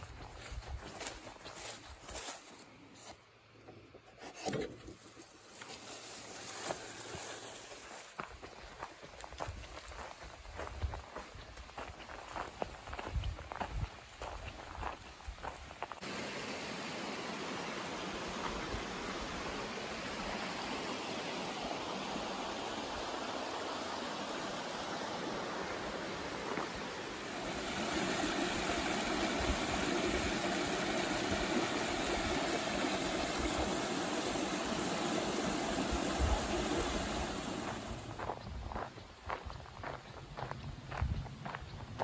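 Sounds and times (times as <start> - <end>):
water rushing over spillway: 16.0 - 38.2.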